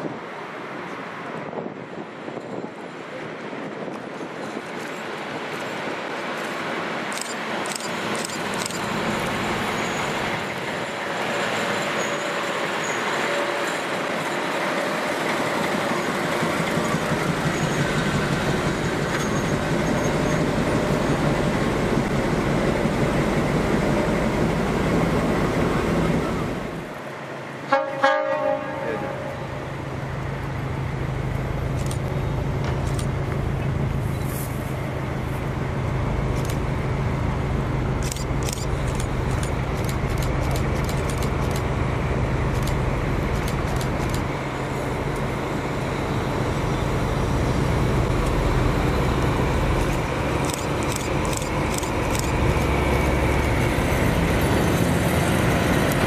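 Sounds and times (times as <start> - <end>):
diesel locomotive engine running: 0.0 - 56.0
locomotive horn toot: 27.7 - 29.6.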